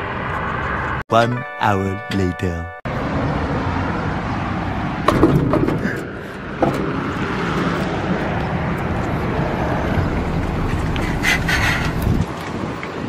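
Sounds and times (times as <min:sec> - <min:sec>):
traffic noise: 0:00.0 - 0:13.0
wind rumbling on microphone: 0:03.2 - 0:13.0.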